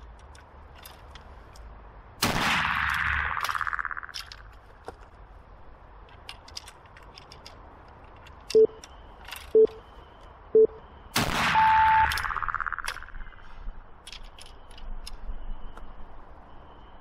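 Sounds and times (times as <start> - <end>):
rifle shot with echo: 2.2 - 3.5, 11.2 - 12.1
short timer beeps: 8.5 - 8.8, 9.6 - 9.9, 10.6 - 10.9, 11.5 - 12.9
long high beep: 10.6 - 12.8.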